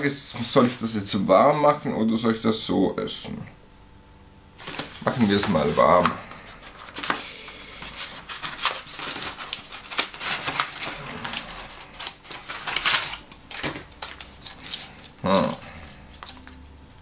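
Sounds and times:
packaging rustling and crinkling: 0:04.6 - 0:17.0.

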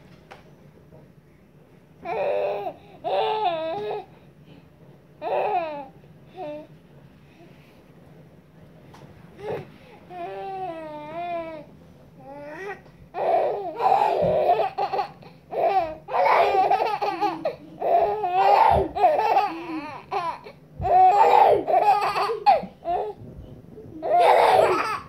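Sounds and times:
baby laughing: 0:13.2 - 0:23.2, 0:24.0 - 0:25.0.

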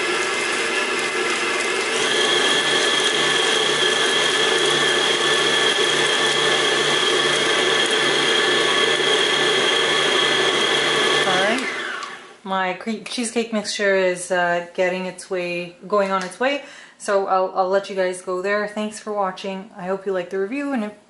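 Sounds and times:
stand mixer motor whine: 0:00.0 - 0:12.4.

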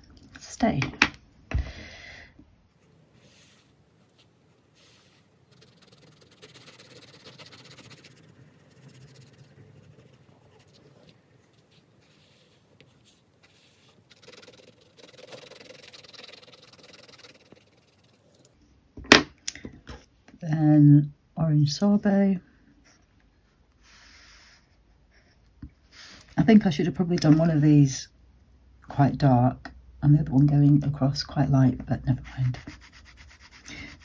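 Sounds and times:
pencil scratching on paper: 0:03.1 - 0:18.5, 0:32.1 - 0:34.0.

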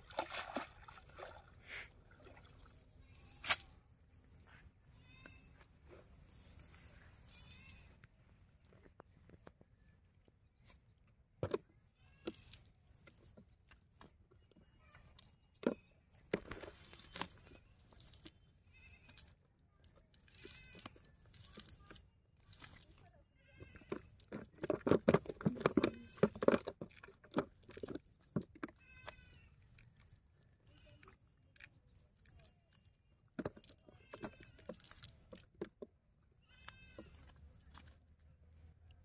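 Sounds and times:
net and dry grass rustling: 0:03.2 - 0:08.4, 0:16.5 - 0:18.3.

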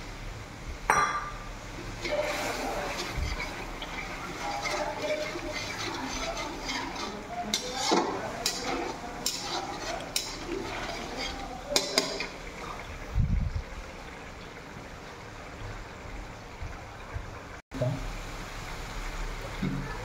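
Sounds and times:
spoon stirring thick liquid: 0:02.0 - 0:12.8.

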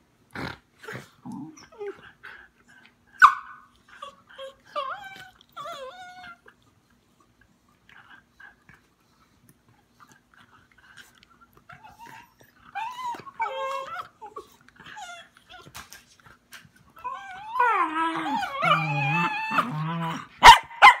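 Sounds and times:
dogs whining and grumbling: 0:00.7 - 0:21.0
dogs whining and yipping: 0:01.3 - 0:06.7, 0:10.9 - 0:21.0.

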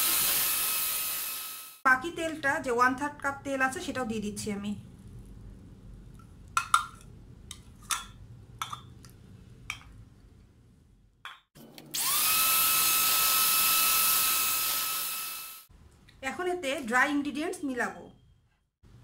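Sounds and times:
electric hand mixer whine: 0:00.0 - 0:01.8, 0:11.9 - 0:15.7.

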